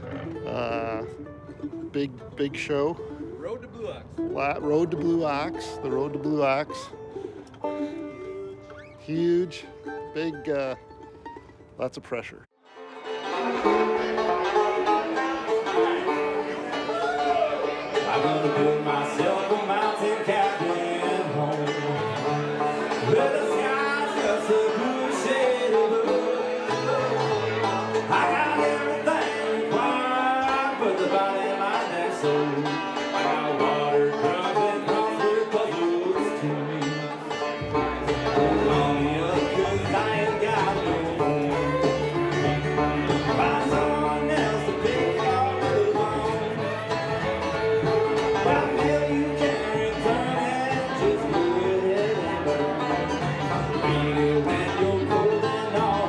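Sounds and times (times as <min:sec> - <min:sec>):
person singing: 0:00.0 - 0:01.2, 0:13.7 - 0:37.2, 0:38.1 - 0:56.0
upright bass: 0:00.0 - 0:12.4, 0:13.0 - 0:56.0
banjo: 0:00.0 - 0:56.0
guitar: 0:00.0 - 0:56.0.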